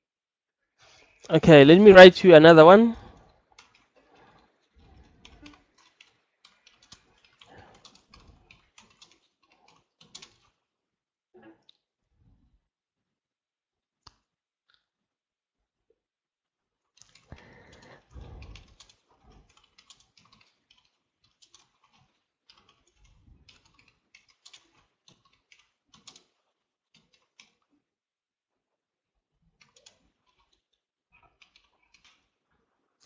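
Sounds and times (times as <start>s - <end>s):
keyboard typing: 5.2s - 10.5s, 17.0s - 27.6s.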